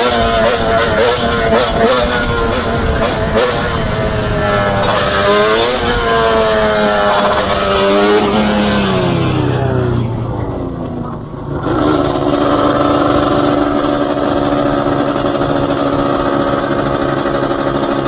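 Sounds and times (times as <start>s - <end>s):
two-stroke engine revving: 0.0s - 18.0s.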